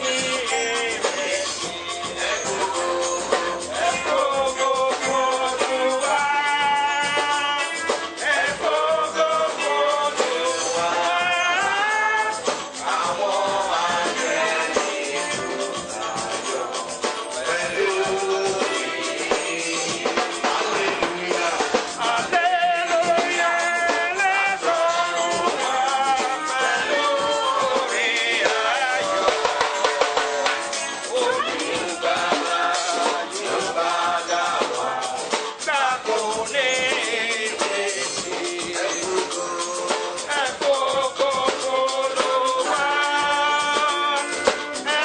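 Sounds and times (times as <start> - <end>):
drums keeping a steady beat: 0.0 - 45.0
music with singing: 0.0 - 45.0.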